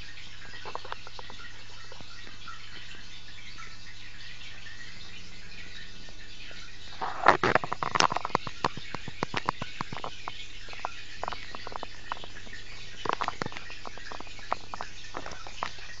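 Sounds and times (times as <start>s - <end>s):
sharp clicks and ticks: 7.4s - 16.0s.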